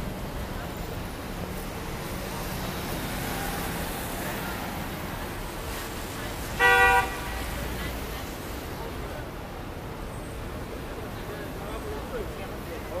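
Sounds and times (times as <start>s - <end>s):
traffic on a wet street: 0.0s - 13.0s
vehicle horn blast: 6.6s - 7.4s.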